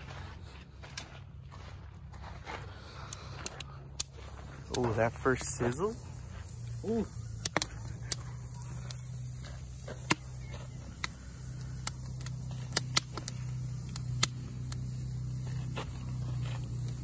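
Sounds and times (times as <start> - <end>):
steady low hum: 0.0 - 17.0
fire pops and crackles: 3.1 - 17.0
steaks sizzling on grill: 4.0 - 17.0.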